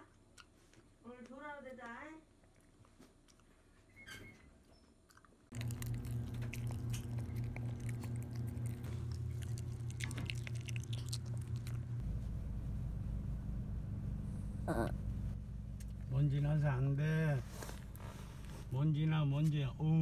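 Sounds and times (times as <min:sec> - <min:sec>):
dog chewing and licking: 0:05.1 - 0:12.0
low hum: 0:05.5 - 0:20.0.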